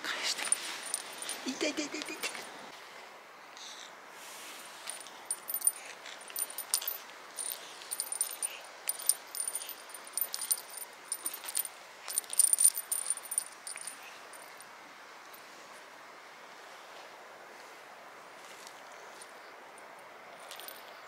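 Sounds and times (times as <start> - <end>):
small metal objects jingling: 0.3 - 2.5, 4.8 - 14.7, 20.4 - 21.0.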